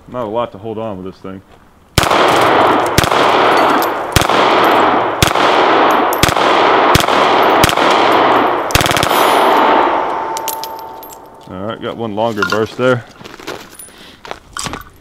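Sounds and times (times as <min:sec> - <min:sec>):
gunshots echoing: 0:02.0 - 0:11.4.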